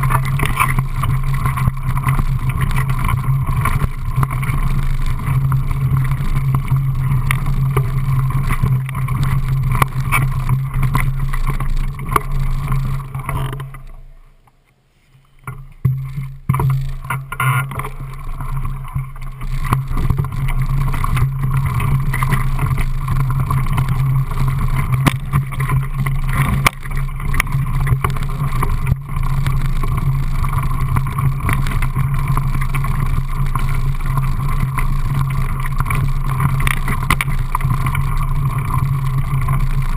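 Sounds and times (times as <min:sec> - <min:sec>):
bike tyres rumbling on gravel: 0:00.0 - 0:14.4, 0:15.1 - 0:39.9
small knocks and rattles: 0:15.4 - 0:39.9.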